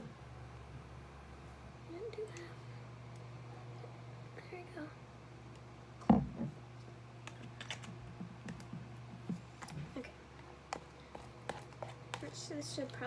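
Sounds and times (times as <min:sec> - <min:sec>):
slime stirring in plastic tub: 0:10.7 - 0:13.0.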